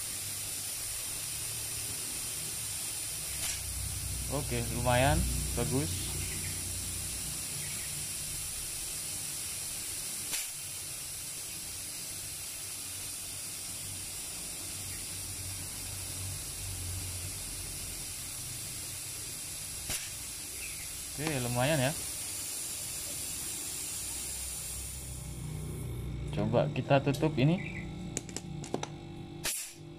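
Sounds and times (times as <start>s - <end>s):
air hissing from pipe: 0.0s - 26.5s, 29.4s - 29.8s
compressors humming: 3.1s - 8.6s, 19.8s - 29.9s.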